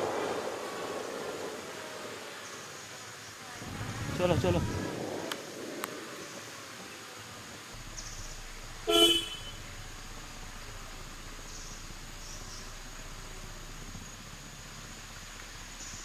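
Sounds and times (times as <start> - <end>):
faint background hiss: 0.0 - 16.0
vehicle horn toot: 8.8 - 9.8.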